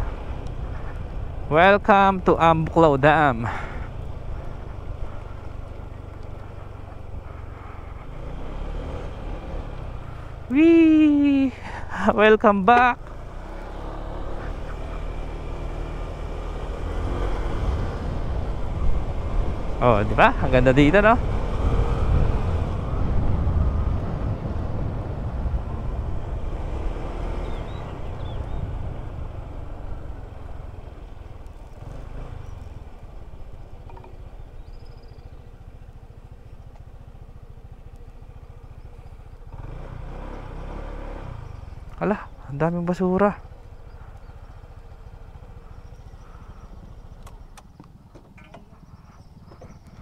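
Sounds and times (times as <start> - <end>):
motorcycle engine running: 0.0 - 50.0
road and wind noise: 0.0 - 50.0
bird chirping: 27.3 - 28.9, 33.8 - 36.8, 41.4 - 50.0.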